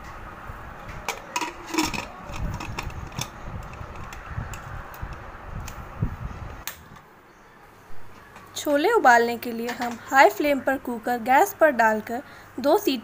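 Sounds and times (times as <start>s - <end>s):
metal lid clinking and scraping: 1.0s - 4.1s.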